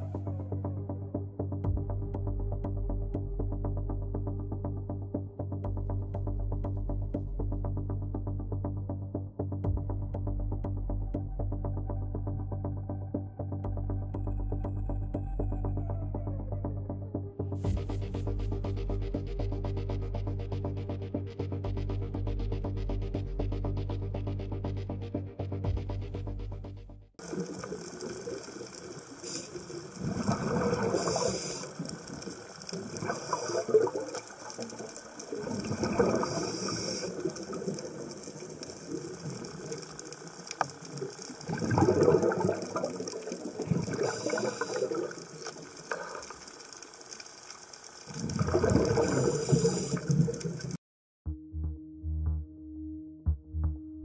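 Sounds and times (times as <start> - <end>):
rushing bubbling water: 27.2 - 50.8
underwater crackling: 27.2 - 50.8.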